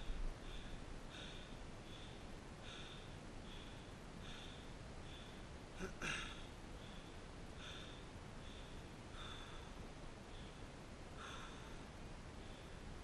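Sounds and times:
fast breathing: 0:06.8 - 0:12.8.

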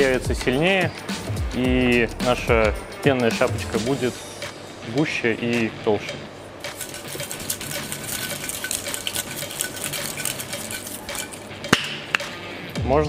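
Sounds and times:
cocktail shaker rattling: 0:06.6 - 0:12.2
sharp clack: 0:10.4 - 0:12.4.

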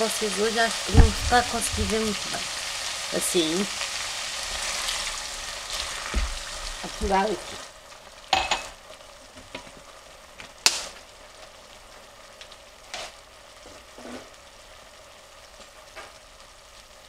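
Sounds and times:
food sizzling in a pot: 0:00.0 - 0:17.0
sharp knocks: 0:00.9 - 0:02.4.

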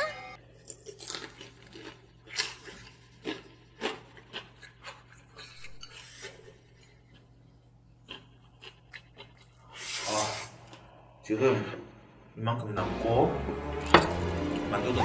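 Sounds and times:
person chewing: 0:00.4 - 0:11.2.

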